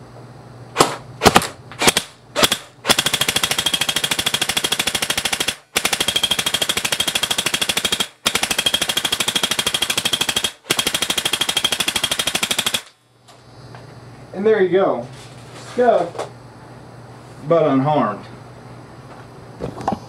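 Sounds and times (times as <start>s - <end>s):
pellets striking mask: 0.8s - 11.0s
airsoft gun shooting: 0.8s - 13.0s.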